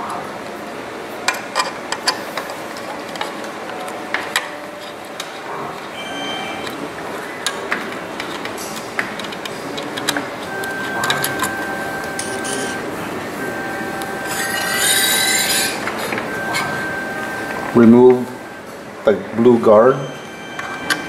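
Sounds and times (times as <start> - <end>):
metal squealing scrape on metal: 14.2 - 15.9.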